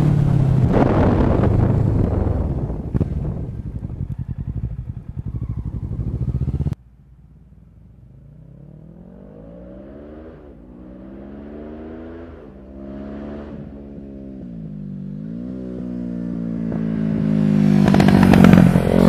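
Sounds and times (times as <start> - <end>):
pulsing engine sound: 0.0 - 11.6
motorcycle engine accelerating: 0.0 - 19.0.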